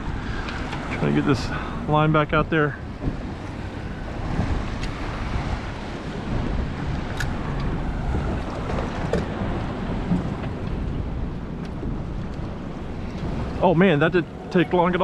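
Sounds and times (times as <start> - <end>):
water lapping against boat: 0.0 - 15.0
wind buffeting microphone: 0.0 - 15.0.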